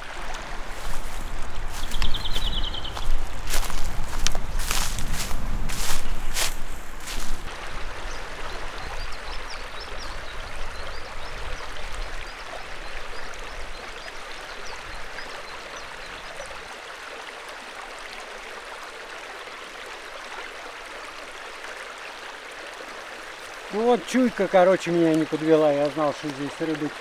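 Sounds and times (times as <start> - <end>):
river rushing over its bed: 0.0 - 27.0.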